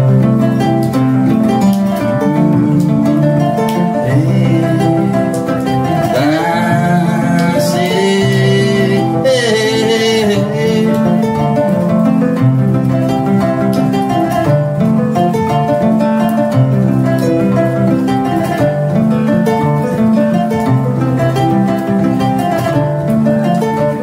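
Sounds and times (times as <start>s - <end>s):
acoustic guitar playing: 0.0s - 24.0s
kora playing: 0.0s - 24.0s.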